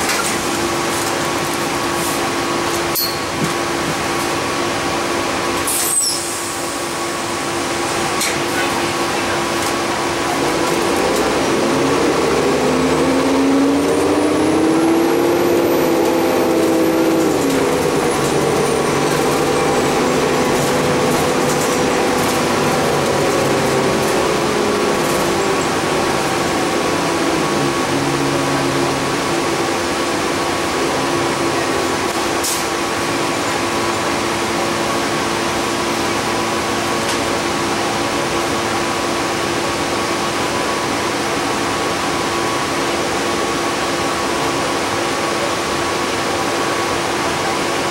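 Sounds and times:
bus engine drone: 0.0 - 47.9
drivetrain whine: 7.0 - 39.1.

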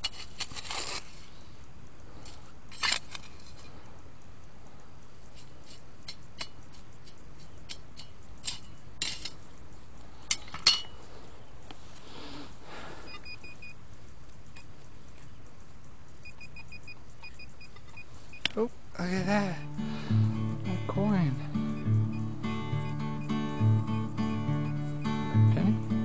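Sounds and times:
shovel scraping pebbles: 0.0 - 1.3
electronic beeping: 19.2 - 25.4.

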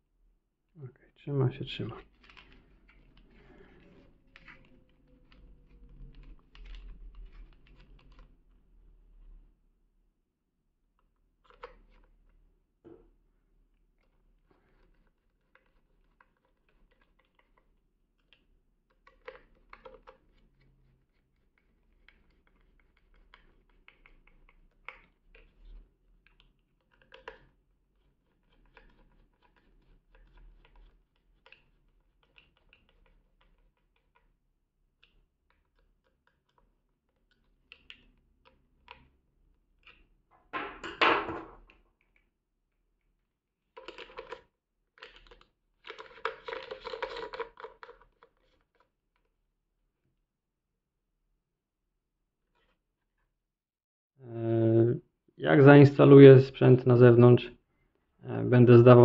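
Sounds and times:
handling plastic parts: 45.0 - 48.9.

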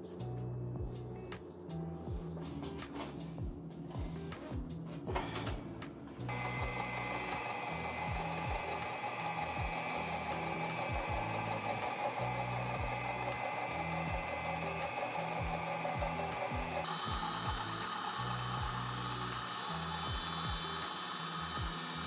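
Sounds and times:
music with bass beat: 0.1 - 20.8, 21.6 - 22.0
milling machine whine: 6.3 - 22.0.

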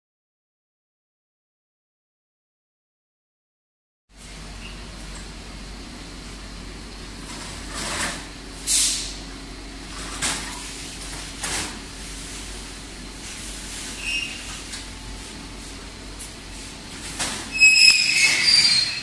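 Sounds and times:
factory machinery humming: 4.2 - 19.0
short air hisses: 8.6 - 9.2.

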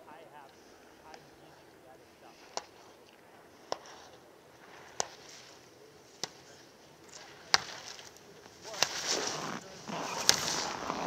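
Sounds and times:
skis scraping over hard snow: 7.6 - 11.0.

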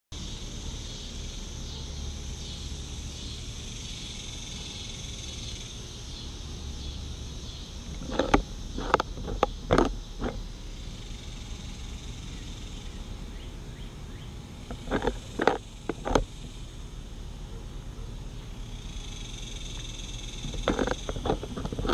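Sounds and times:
insects: 0.1 - 21.9
rabbit crunching carrot: 20.4 - 21.9.

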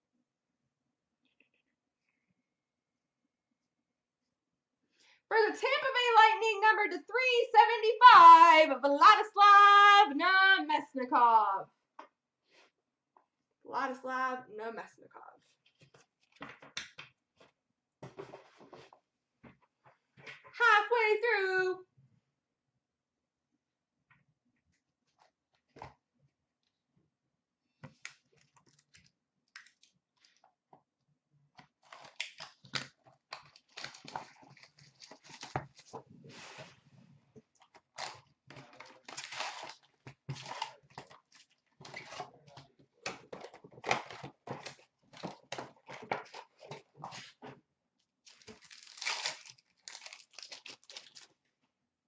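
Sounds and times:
wrapper tearing: 31.8 - 35.9, 37.9 - 42.3, 48.3 - 51.4
wrapping crinkling: 31.8 - 36.0, 37.7 - 42.3, 48.2 - 51.4.

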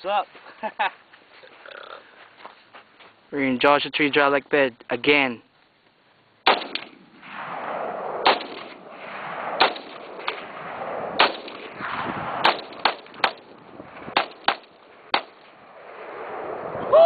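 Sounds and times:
rifle shots: 6.4 - 16.5.

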